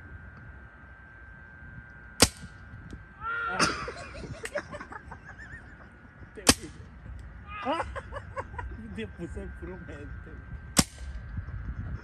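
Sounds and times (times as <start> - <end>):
paintball marker shots: 2.2 - 2.6, 6.4 - 6.8, 10.8 - 11.2
person shouting: 3.2 - 3.7, 7.5 - 7.9.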